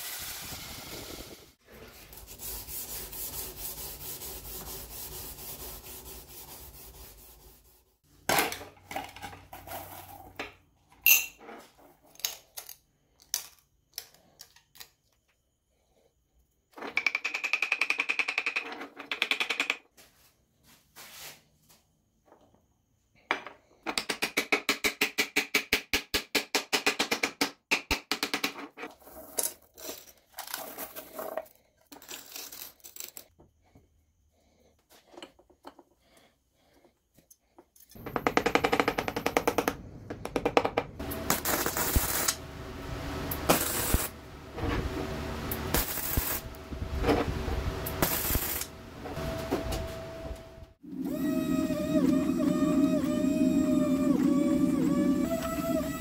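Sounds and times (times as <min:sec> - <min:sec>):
welding arc crackling: 0:41.1 - 0:44.4, 0:45.5 - 0:46.7, 0:47.8 - 0:48.8.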